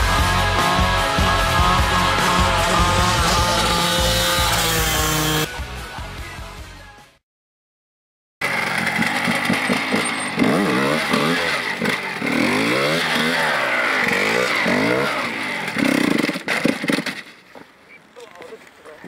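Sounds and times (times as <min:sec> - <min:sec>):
motorcycle engine revving: 0:00.0 - 0:05.5, 0:08.4 - 0:17.4.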